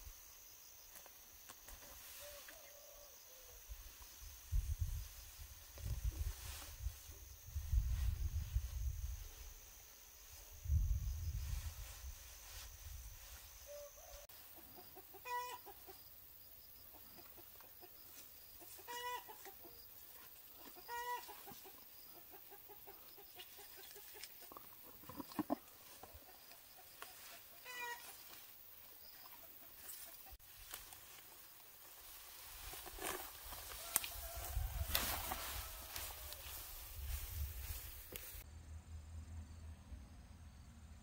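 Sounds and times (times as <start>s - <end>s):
chicken clucking: 14.1s - 16.1s, 18.6s - 19.8s, 20.5s - 28.2s.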